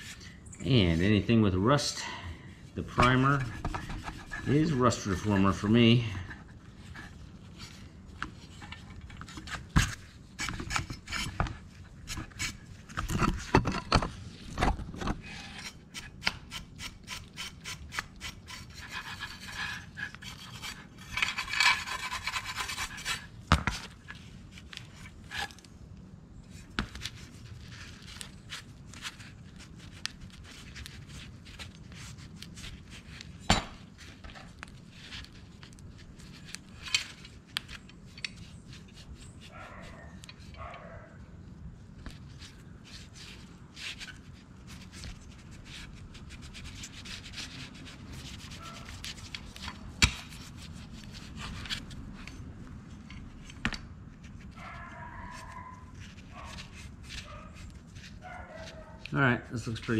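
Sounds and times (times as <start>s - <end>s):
wire brush scrubbing steel rod: 15.3s - 23.2s.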